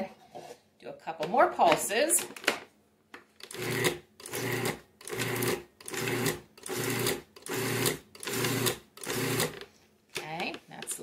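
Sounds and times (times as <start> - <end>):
food processor pulsing: 3.4 - 9.6.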